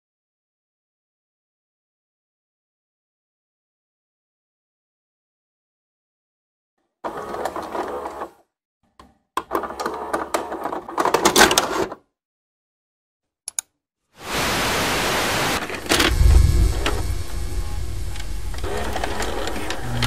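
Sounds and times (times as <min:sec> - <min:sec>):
tape hiss: 0:14.2 - 0:20.0
tape loading clattering and whirring: 0:15.6 - 0:20.0
deep thump: 0:16.0 - 0:18.7.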